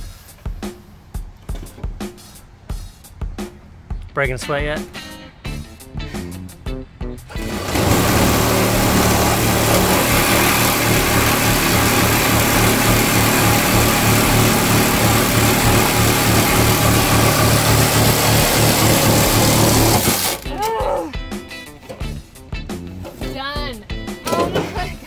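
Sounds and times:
reciprocating saw cutting metal: 7.3s - 20.5s.

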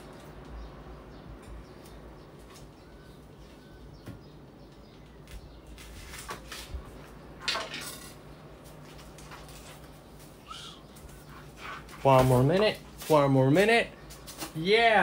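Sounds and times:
dishes and utensils clattering: 7.4s - 8.3s.

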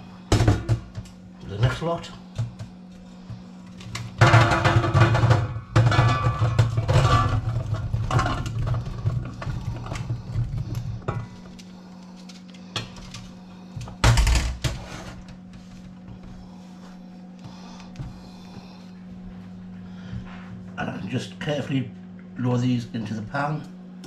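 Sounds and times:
potato chunks tumbling into pan: 4.1s - 11.6s.

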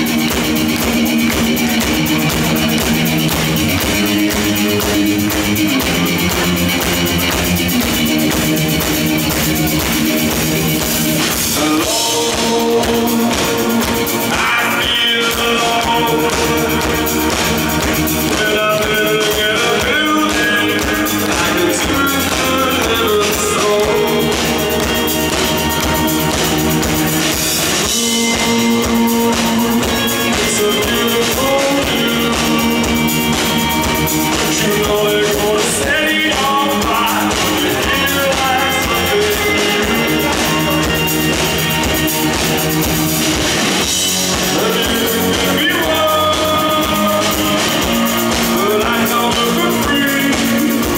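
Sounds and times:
bass guitar: 0.0s - 50.9s
drum kit: 0.0s - 50.9s
electric guitar: 0.0s - 50.9s
man singing: 11.1s - 26.0s, 27.7s - 41.8s, 43.8s - 50.9s.

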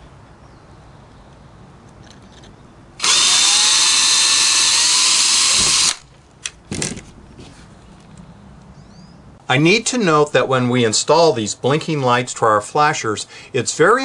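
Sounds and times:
cordless drill boring plastic: 3.0s - 6.0s.

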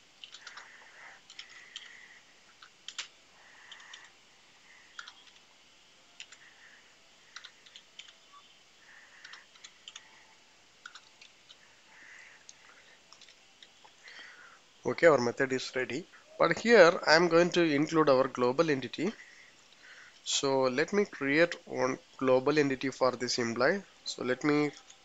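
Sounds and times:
keyboard typing clicks: 0.2s - 0.7s, 1.3s - 1.9s, 2.6s - 3.1s, 5.0s - 5.5s, 7.3s - 8.2s, 9.2s - 10.1s, 10.8s - 11.6s, 12.5s - 13.7s.

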